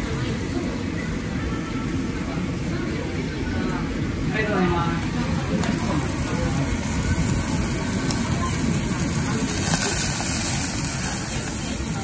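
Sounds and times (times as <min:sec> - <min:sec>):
extraction fan rumble: 0:00.0 - 0:12.0
meat sizzling on grill: 0:04.4 - 0:12.0.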